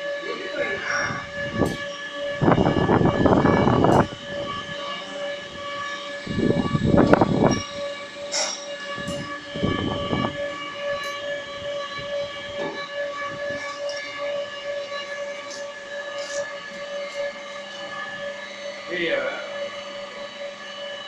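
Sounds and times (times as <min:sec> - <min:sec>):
electric motor and pump whining: 0:00.0 - 0:21.0.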